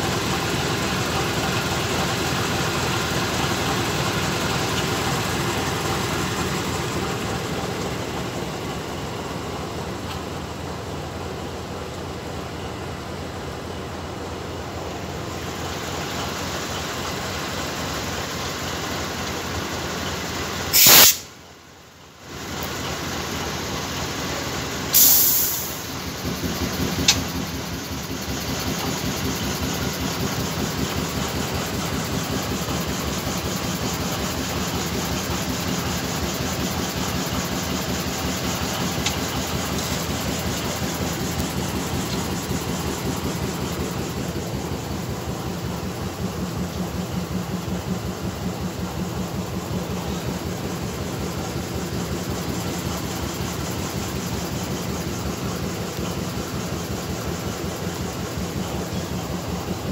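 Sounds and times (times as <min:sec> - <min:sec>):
diesel locomotive idling: 0:00.0 - 0:59.9
sharp hiss of released air: 0:20.7 - 0:21.4, 0:24.9 - 0:26.0
single click: 0:20.8 - 0:21.3.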